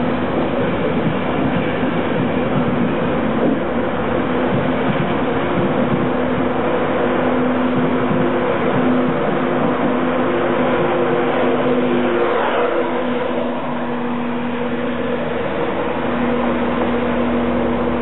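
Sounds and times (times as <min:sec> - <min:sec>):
electric train hum: 0:00.0 - 0:18.0
train wheels rumbling on rail: 0:00.0 - 0:18.0.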